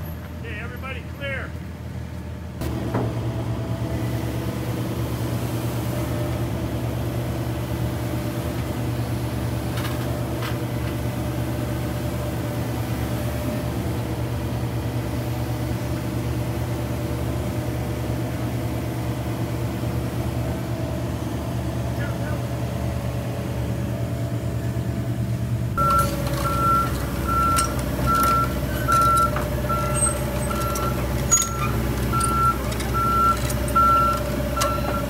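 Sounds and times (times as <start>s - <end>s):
excavator diesel engine running: 0.0s - 35.0s.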